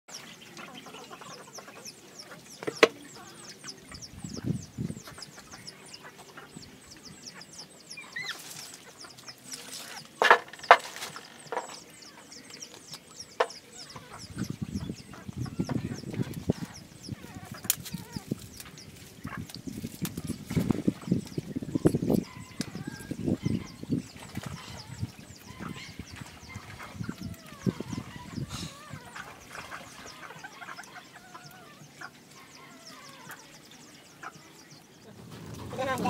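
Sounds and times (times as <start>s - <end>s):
puppies squeaking and whimpering: 24.5s - 33.5s.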